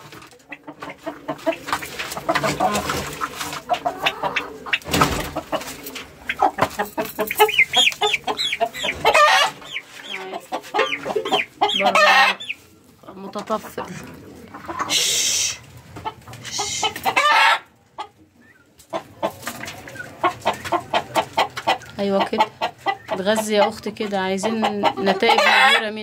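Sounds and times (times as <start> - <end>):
hens clucking and calling: 0.0 - 26.0.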